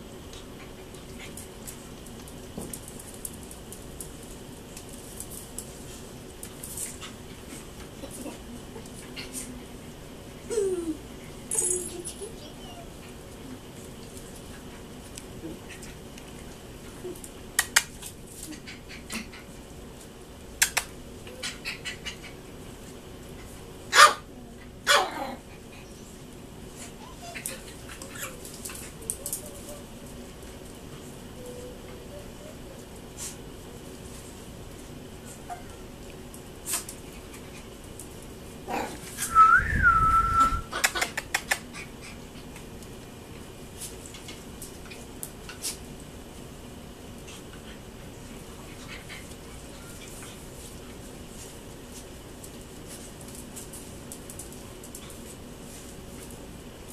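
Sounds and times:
puppy whining: 10.4s - 13.2s, 26.8s - 30.0s, 31.3s - 32.9s, 48.9s - 50.2s.

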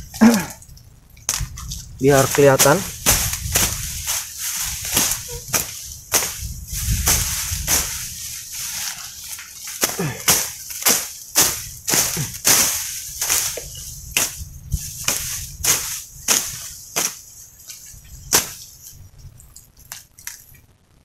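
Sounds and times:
machete slashing through grass: 1.3s - 17.2s, 18.3s - 18.7s.

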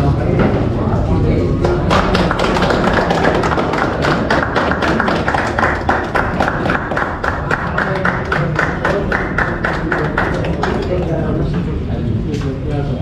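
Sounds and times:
background hubbub: 0.0s - 13.0s
crowd clapping in rhythm: 1.6s - 11.6s.

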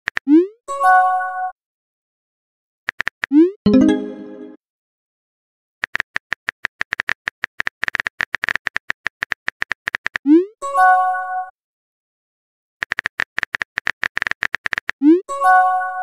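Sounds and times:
rising pop and electronic chime: 3.7s - 4.6s
phone keyboard typing clicks: 5.8s - 10.2s, 12.8s - 15.0s.

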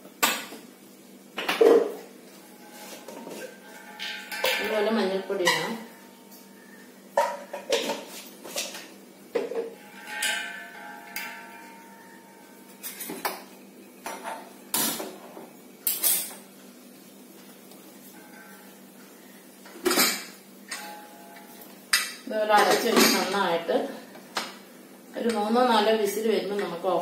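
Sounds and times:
metal cookware clanking: 2.8s - 6.4s, 7.1s - 16.5s, 19.6s - 23.7s
ringing metal clank: 3.4s - 6.3s, 9.7s - 13.5s, 20.0s - 21.5s.

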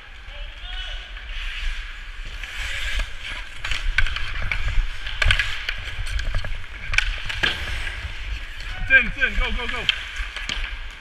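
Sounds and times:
hockey sticks and puck clacking: 0.1s - 11.0s
skate blades scraping ice: 0.2s - 11.0s
low rumble of wind: 2.9s - 10.2s.

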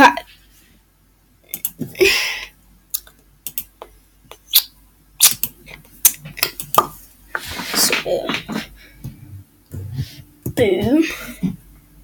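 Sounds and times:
computer mouse clicks: 1.5s - 1.8s, 3.0s - 3.8s.

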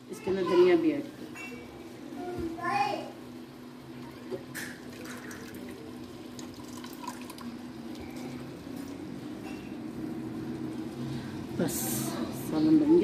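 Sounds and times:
curry bubbling and popping: 3.9s - 9.0s.

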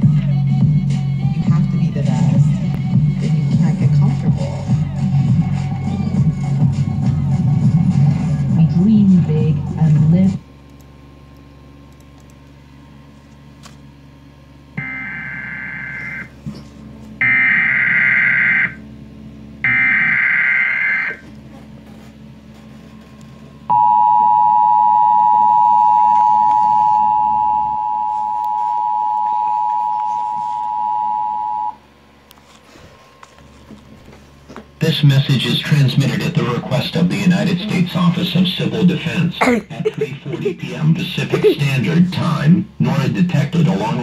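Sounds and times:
two-tone attention signal: 14.8s - 16.3s, 19.7s - 21.2s, 23.7s - 31.8s
screeching digital data bursts: 19.7s - 21.2s.

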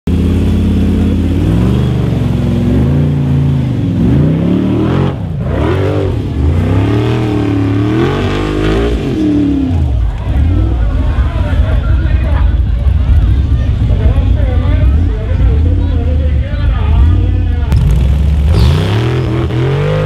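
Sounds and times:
buggy engine revving hard: 0.1s - 11.8s, 16.8s - 20.0s.

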